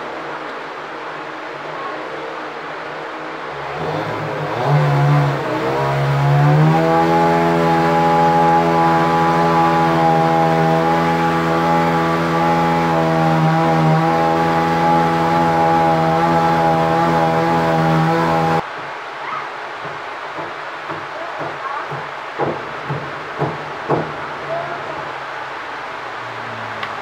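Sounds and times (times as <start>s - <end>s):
constant rushing hiss: 0.0s - 6.7s, 18.6s - 27.0s.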